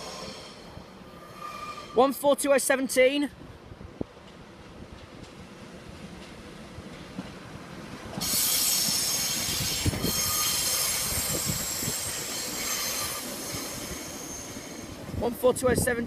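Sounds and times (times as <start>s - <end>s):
wheel squeal on rails: 0.0s - 2.2s, 8.2s - 15.0s.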